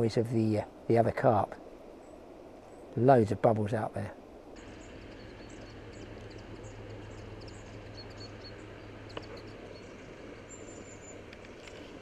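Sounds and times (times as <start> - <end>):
background hiss: 0.0 - 12.0
low hum: 4.4 - 12.0
small birds chirping: 4.6 - 12.0.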